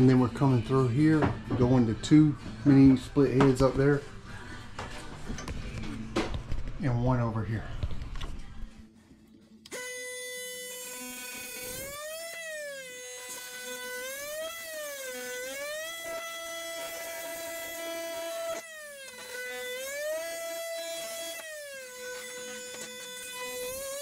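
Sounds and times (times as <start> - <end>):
power tool cutting wall panel: 9.7 - 24.0.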